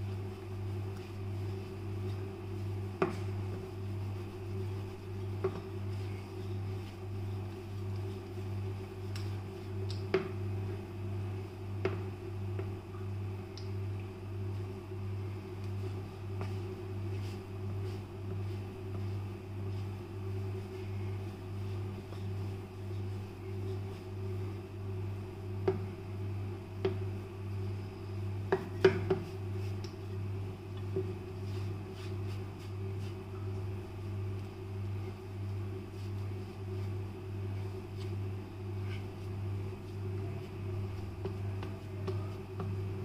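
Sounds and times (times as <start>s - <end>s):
rolling pin working dough on board: 0.0s - 10.8s, 15.5s - 24.7s, 28.5s - 29.8s, 30.8s - 34.4s, 35.0s - 43.0s.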